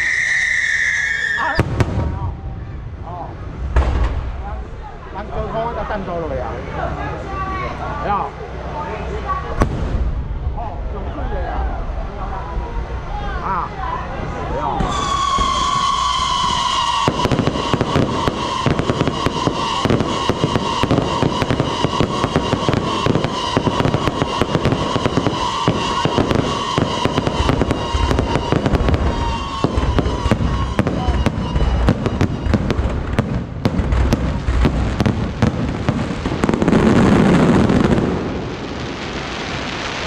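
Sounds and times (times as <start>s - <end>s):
fireworks bangs: 0.0s - 6.4s, 9.4s - 10.7s, 14.6s - 40.0s
fireworks rushing crackle: 14.7s - 40.0s.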